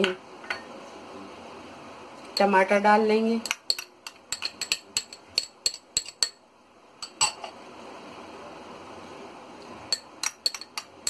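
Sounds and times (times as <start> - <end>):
soft steady hiss: 0.0 - 11.0
spoon clinking against bowls: 3.4 - 6.4, 9.9 - 11.0.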